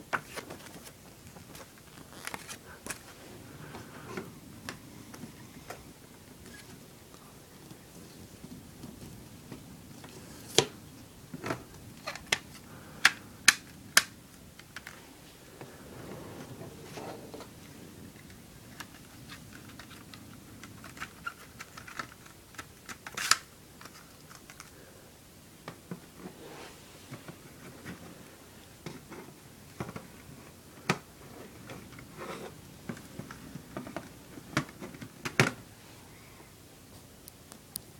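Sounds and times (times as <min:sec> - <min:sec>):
paper rustling: 0:00.1 - 0:04.1.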